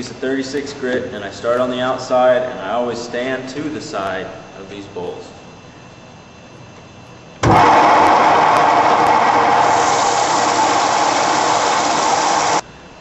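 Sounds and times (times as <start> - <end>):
wood lathe running: 7.4 - 12.6.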